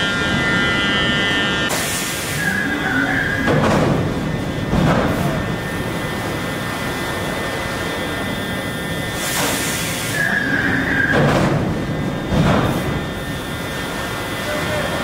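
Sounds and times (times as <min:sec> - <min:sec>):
stamping press industrial din: 0:00.0 - 0:07.1, 0:07.7 - 0:15.0
brief high squeal: 0:10.1 - 0:11.1.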